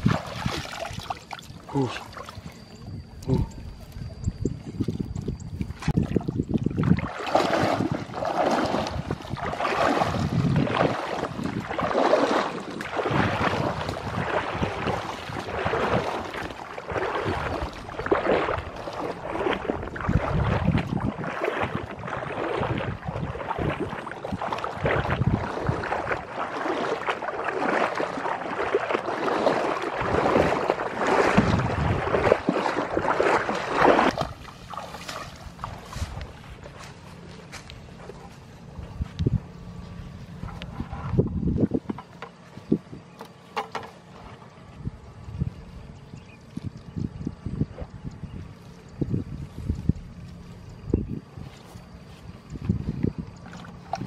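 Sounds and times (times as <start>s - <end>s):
water splashing while wading: 0.0s - 54.0s.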